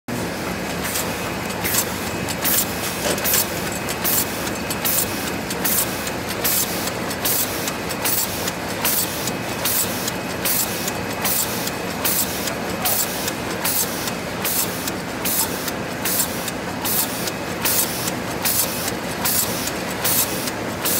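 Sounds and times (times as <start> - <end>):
machine mechanical din: 0.7 - 13.8.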